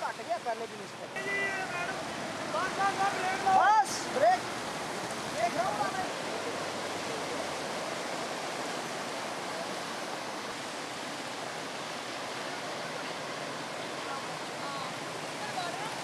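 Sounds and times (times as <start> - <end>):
floodwater rushing: 0.0 - 16.0.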